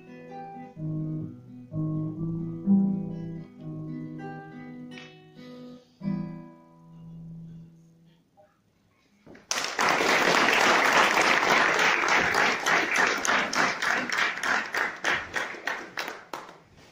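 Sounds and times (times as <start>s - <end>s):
audience applauding: 9.4s - 16.7s.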